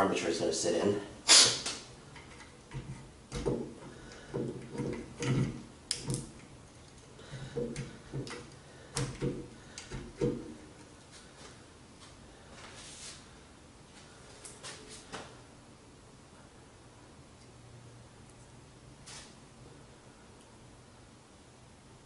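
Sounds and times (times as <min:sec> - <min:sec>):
metal parts clicking and knocking: 0:02.1 - 0:10.6.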